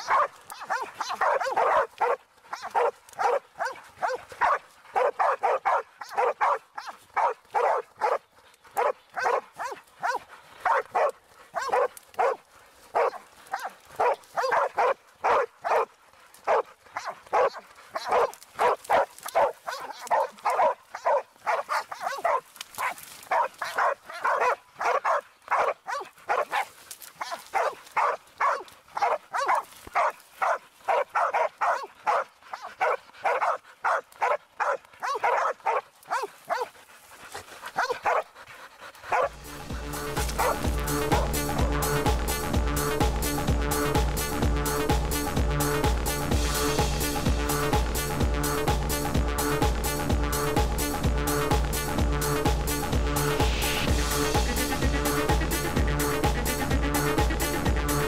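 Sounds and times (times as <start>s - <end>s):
dog barking: 0.0s - 36.8s, 37.7s - 38.3s, 39.1s - 39.3s, 40.3s - 41.4s.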